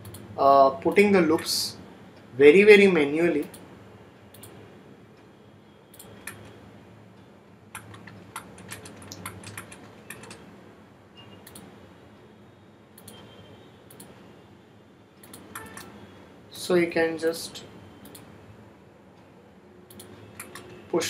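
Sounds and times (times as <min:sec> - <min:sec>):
computer mouse clicks: 0:00.0 - 0:00.3, 0:04.3 - 0:04.6, 0:05.9 - 0:06.6, 0:07.7 - 0:10.4, 0:11.4 - 0:11.7, 0:13.0 - 0:13.3, 0:13.9 - 0:14.2, 0:15.2 - 0:15.9, 0:18.0 - 0:18.3, 0:19.9 - 0:20.8
keyboard clicks: 0:00.0 - 0:00.3, 0:05.9 - 0:06.6, 0:07.7 - 0:10.5, 0:11.4 - 0:11.7, 0:13.0 - 0:13.3, 0:13.9 - 0:14.2, 0:15.2 - 0:16.0, 0:18.0 - 0:18.3, 0:19.9 - 0:20.8.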